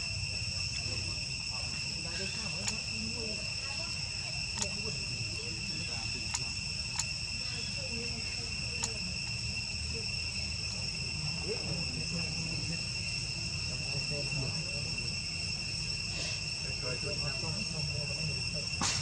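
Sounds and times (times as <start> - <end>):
insect chorus drone: 0.0 - 19.0
sharp clicks: 4.6 - 4.8, 6.3 - 7.1.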